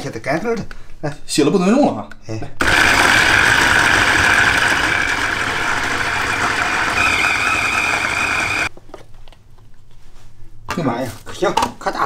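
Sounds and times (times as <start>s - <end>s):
food chopper motor whine: 2.6s - 8.7s
higher whine: 2.6s - 8.7s.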